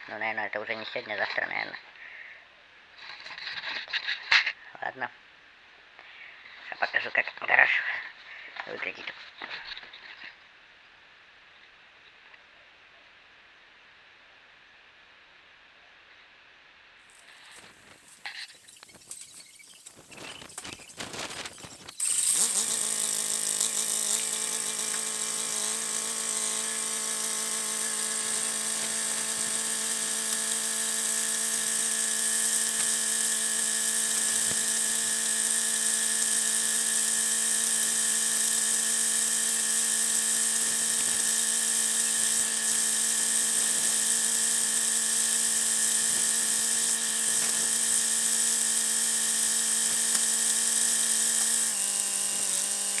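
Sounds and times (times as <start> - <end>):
sped-up tractor engine whine: 17.2 - 53.0.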